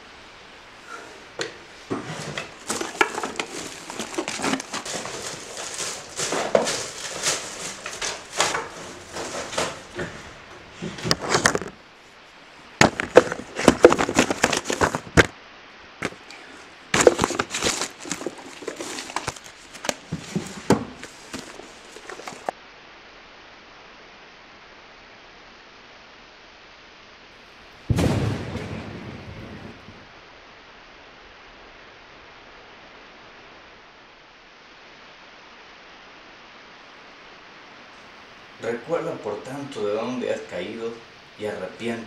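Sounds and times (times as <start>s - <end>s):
rustling and crinkling: 0.8s - 15.4s, 16.0s - 22.6s.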